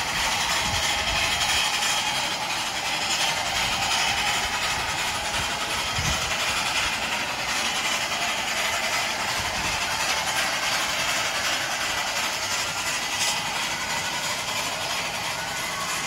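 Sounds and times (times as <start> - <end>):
steam locomotive hissing steam: 0.0 - 16.0.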